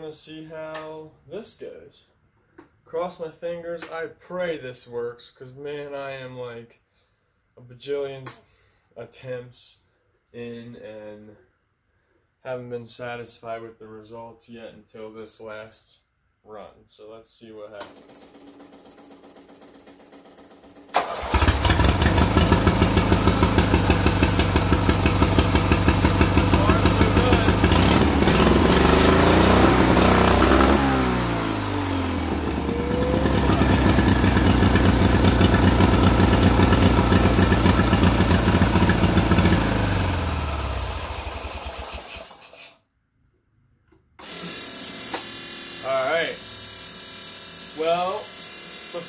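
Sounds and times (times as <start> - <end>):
lawn mower engine running hard: 21.0 - 42.4
charge pipe blowing off: 21.3 - 39.8.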